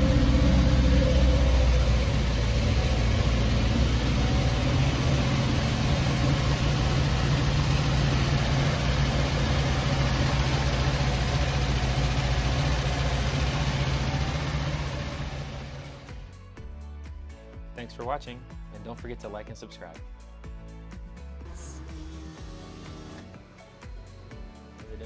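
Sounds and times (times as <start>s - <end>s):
pickup truck engine idling: 0.0s - 16.3s.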